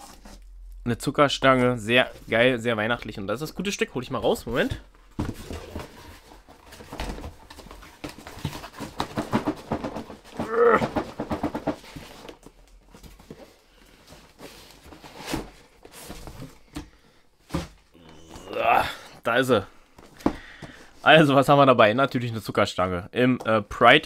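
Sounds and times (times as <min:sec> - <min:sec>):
cardboard packaging rustling: 0:04.6 - 0:16.8.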